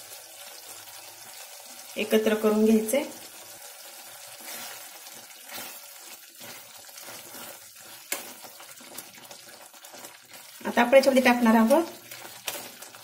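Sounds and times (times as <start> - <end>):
curry sizzling in a pan: 0.0 - 13.0
steel spoon stirring: 4.4 - 10.6, 11.8 - 13.0.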